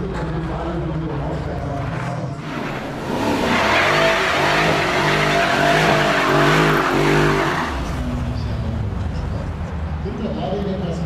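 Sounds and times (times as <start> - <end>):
car engine revving: 2.4 - 8.6
tyres squealing and skidding: 2.4 - 8.6.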